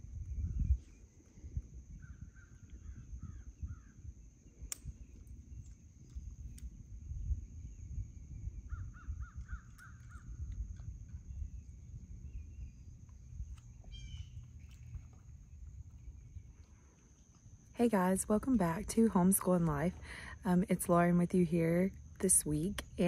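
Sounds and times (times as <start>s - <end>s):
wind rumble on microphone: 0.0s - 20.2s
bird calling: 13.7s - 15.2s.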